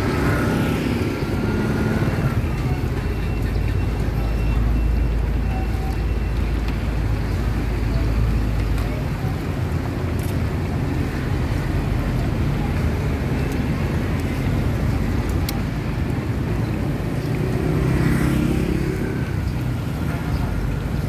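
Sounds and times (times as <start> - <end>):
motor traffic rumble: 0.0 - 21.0
vehicle engine: 0.0 - 21.0.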